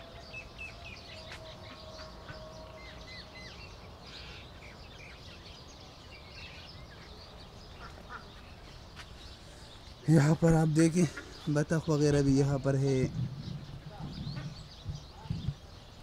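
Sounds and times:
low background noise: 0.0 - 16.0
small birds chirping: 0.0 - 16.0.

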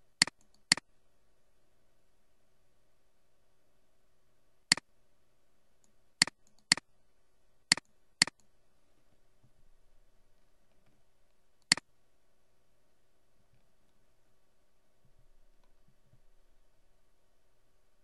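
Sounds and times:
computer mouse clicks: 0.2 - 0.8, 5.8 - 6.8, 7.7 - 8.5.

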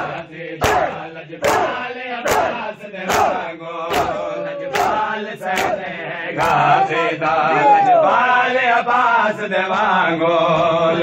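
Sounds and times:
men chanting and shouting: 0.0 - 11.0
hands slapping chests: 0.6 - 5.8.

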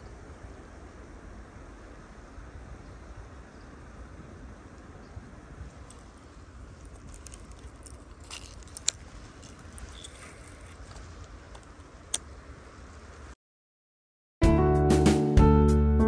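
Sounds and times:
fishing reel clicks: 6.9 - 10.9.

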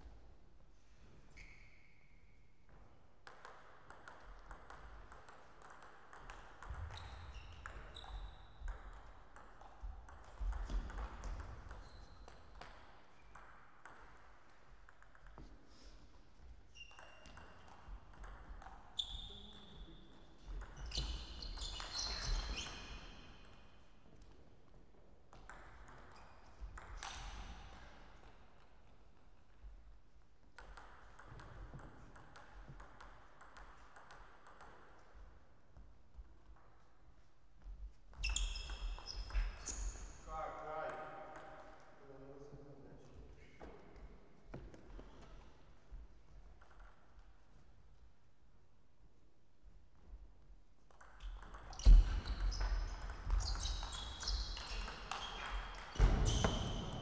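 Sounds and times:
shoes squeaking on floor: 1.2 - 2.3, 6.8 - 8.6, 11.2 - 12.5, 16.6 - 18.0, 18.9 - 19.8, 20.6 - 23.4, 38.1 - 40.3, 51.2 - 57.0.

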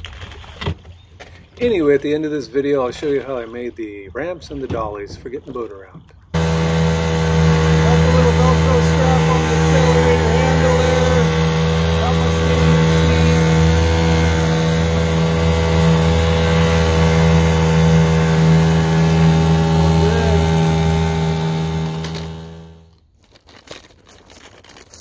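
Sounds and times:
outboard motor running: 6.3 - 22.9.

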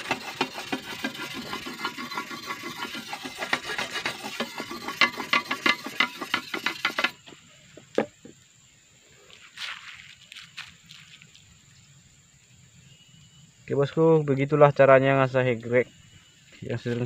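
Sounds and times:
whetstone scraping steel blade: 0.0 - 7.2.

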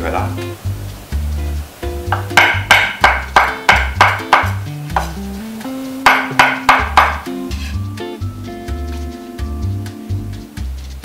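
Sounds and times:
background music: 0.0 - 11.0
cleaver chopping on wooden board: 2.1 - 5.2, 6.0 - 7.3.

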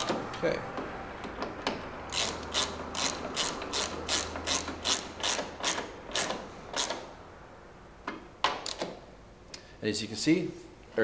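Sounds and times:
ratcheting driver clicking: 1.2 - 7.1, 8.5 - 9.0.

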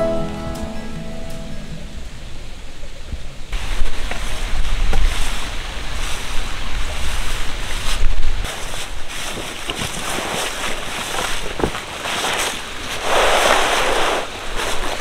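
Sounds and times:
leaves crackling: 0.0 - 15.0
tarp rustling and crinkling: 3.6 - 15.0
tarp swish: 4.3 - 15.0.

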